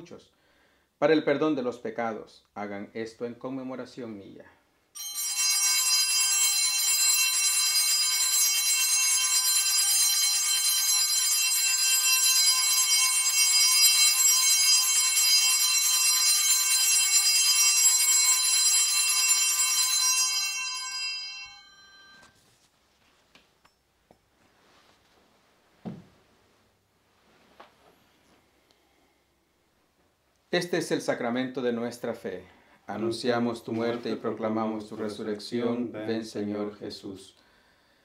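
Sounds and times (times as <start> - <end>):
altar bells ringing: 5.0 - 22.4.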